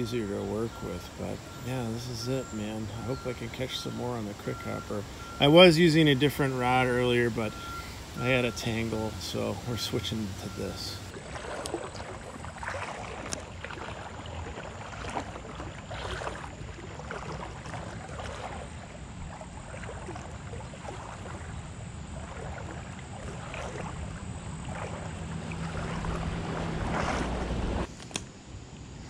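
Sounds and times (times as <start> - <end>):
creek current rushing: 0.0 - 21.4, 22.2 - 27.9
small knocks and splashes: 6.6 - 28.3
wind buffeting microphone: 22.1 - 27.9.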